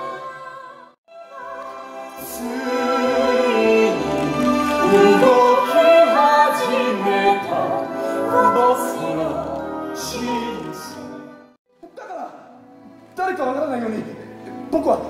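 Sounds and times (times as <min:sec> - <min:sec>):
woman singing operatic solo: 0:00.0 - 0:11.1.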